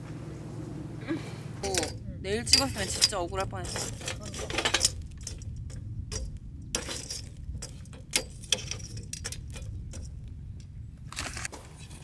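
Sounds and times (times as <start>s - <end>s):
low steady rumble: 0.0s - 12.0s
tongs clinking on charcoal: 1.6s - 10.7s.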